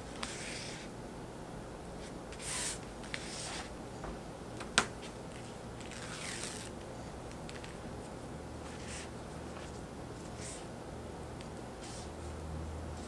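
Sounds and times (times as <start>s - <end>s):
nylon fabric rustling: 5.0s - 6.8s
tape being peeled: 5.8s - 7.8s.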